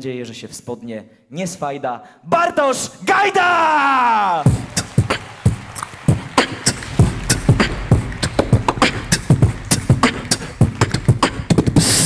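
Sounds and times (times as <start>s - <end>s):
kick drum beat: 4.5s - 12.0s.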